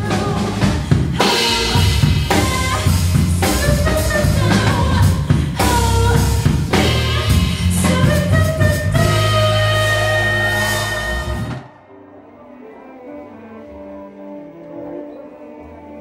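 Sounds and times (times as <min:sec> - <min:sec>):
drum kit steady beat: 0:00.0 - 0:11.7
electric bass: 0:00.0 - 0:11.7
piano: 0:00.0 - 0:16.0.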